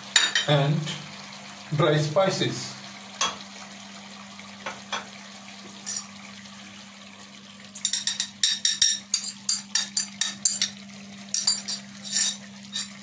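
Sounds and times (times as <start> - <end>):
spices clinking into pot: 5.8 - 6.1, 7.8 - 13.0.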